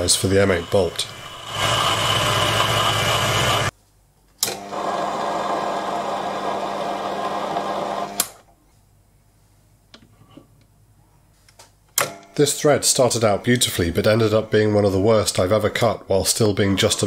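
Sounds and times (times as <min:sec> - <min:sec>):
lathe cutting steel: 0:00.0 - 0:03.7
lathe motor hum: 0:00.0 - 0:03.7, 0:04.6 - 0:08.4.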